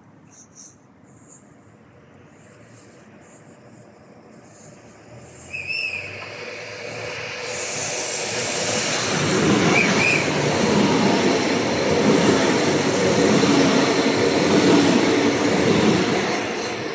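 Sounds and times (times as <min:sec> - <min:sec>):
train rumble and rail noise: 0:00.0 - 0:16.9
electric train passing: 0:01.3 - 0:16.9.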